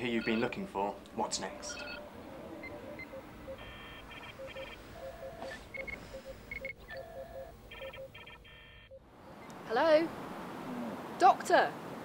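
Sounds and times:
short electronic beeps: 1.7 - 2.0, 2.6 - 9.5.

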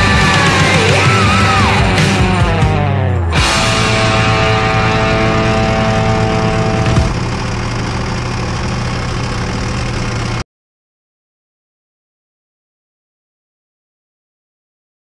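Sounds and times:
steady engine whine: 0.0 - 10.4
tractor diesel engine running: 0.0 - 10.4.

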